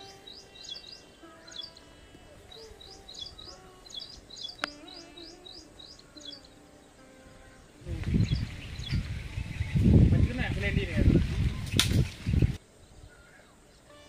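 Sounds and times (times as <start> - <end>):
small birds chirping: 0.0 - 14.0
sharp click: 11.7 - 12.1.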